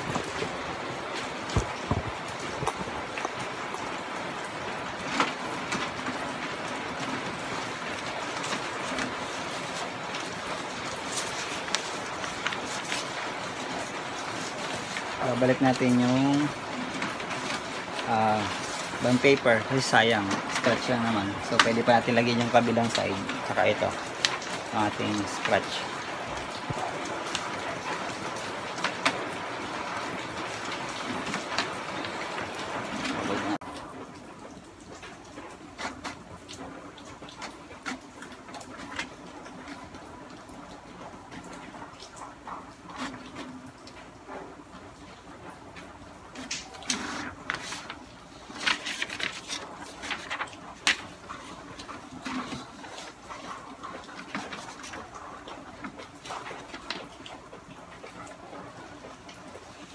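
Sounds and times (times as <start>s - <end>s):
paper rustling: 7.9s - 27.5s, 46.3s - 55.1s.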